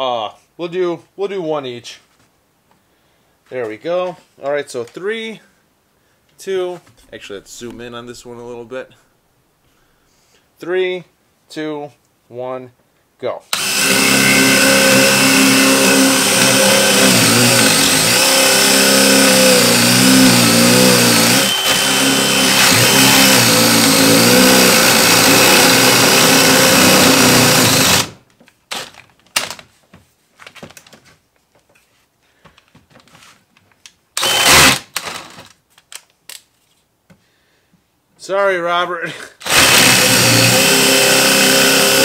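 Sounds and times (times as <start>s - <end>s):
drill motor whine: 13.5s - 28.2s, 34.2s - 34.8s, 39.4s - 42.0s.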